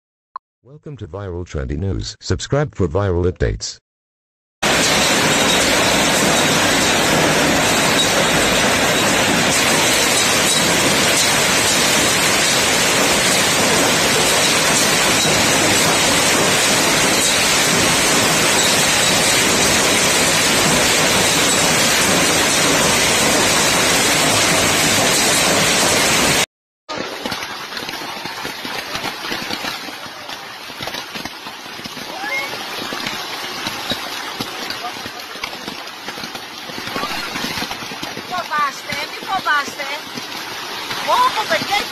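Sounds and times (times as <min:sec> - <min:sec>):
hail pelting the ground: 0:04.6 - 0:41.9.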